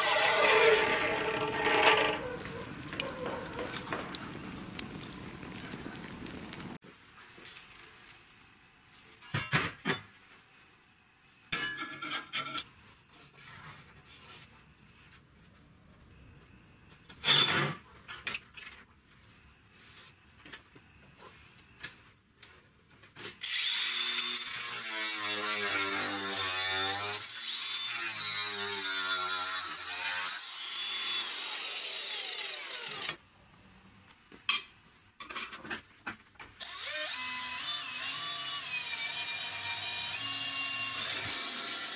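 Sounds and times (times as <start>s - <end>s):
power tool cutting steel: 0.0s - 3.7s, 23.4s - 33.2s, 36.6s - 41.9s
steel scraping on workbench: 0.0s - 5.1s
cordless drill boring into steel: 36.6s - 39.6s.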